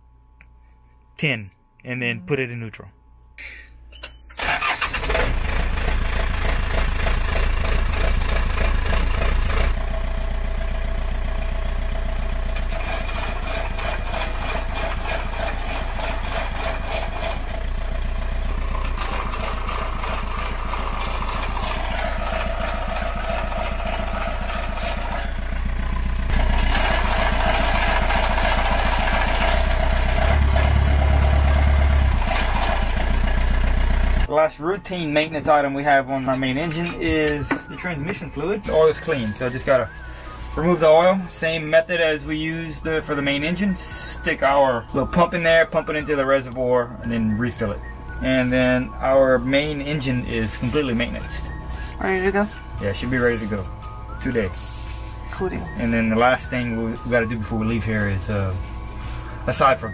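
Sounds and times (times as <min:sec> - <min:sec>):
diesel engine starting and idling: 0:04.0 - 0:45.8, 0:48.8 - 0:59.9
engine surging: 0:11.4 - 0:34.3.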